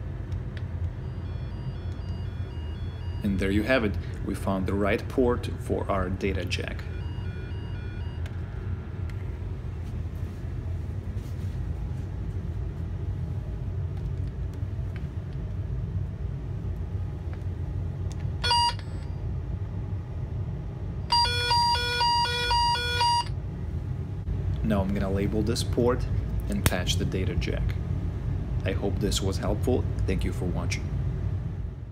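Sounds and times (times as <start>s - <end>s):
low rumble: 0.0s - 18.4s.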